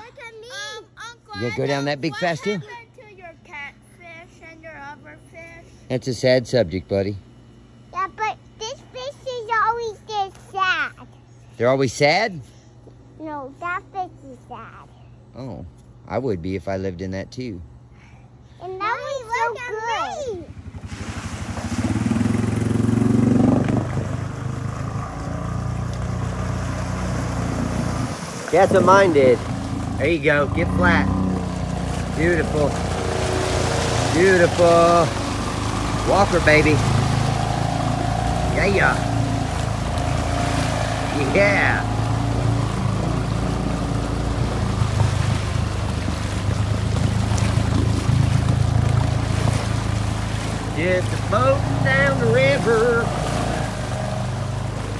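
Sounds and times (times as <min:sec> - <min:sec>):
water splashing around wheels: 0:20.4 - 0:54.9
quad engine revving: 0:20.5 - 0:54.9.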